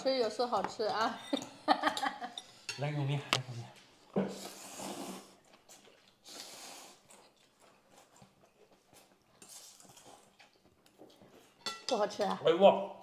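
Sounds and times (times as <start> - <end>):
breathy eating noises: 3.8 - 11.6.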